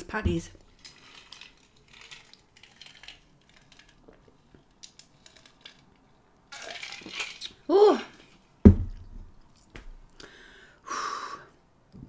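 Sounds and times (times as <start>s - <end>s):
rush of breath: 10.2s - 11.5s.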